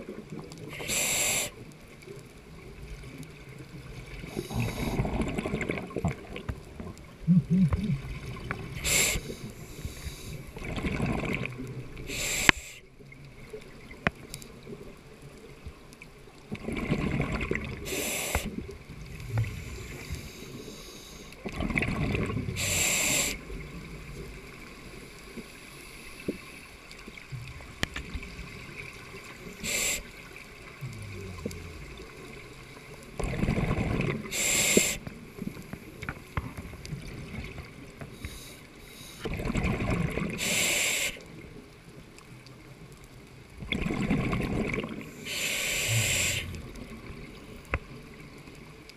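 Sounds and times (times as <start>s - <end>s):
diver breathing through regulator: 0.7s - 1.6s, 4.3s - 5.2s, 8.8s - 10.6s, 12.1s - 12.8s, 17.8s - 18.6s, 22.5s - 23.5s, 29.5s - 30.2s, 30.8s - 32.2s, 34.2s - 35.1s, 40.4s - 41.2s, 45.1s - 46.9s
bubbles: 3.9s - 9.2s, 10.6s - 12.0s, 16.4s - 20.1s, 21.4s - 24.5s, 30.5s - 34.3s, 39.2s - 40.4s, 43.6s - 45.1s, 45.8s - 47.5s.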